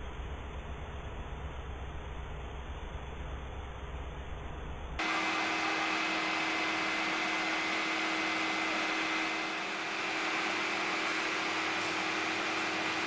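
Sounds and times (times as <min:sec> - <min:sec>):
mechanical hum and hiss: 0:00.0 - 0:13.0
thin high whine: 0:05.0 - 0:13.0.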